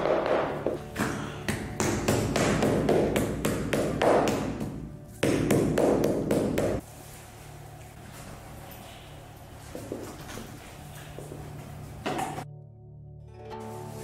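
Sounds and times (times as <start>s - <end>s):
mallet pounding canvas: 0.0s - 6.8s.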